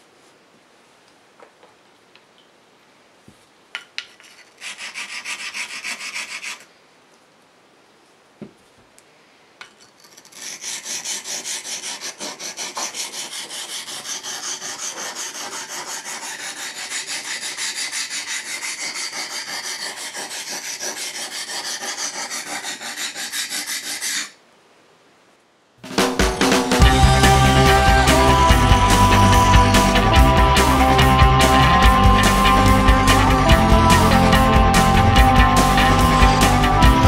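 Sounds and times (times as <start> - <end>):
knife scraping on sharpening stone: 9.8 - 24.3.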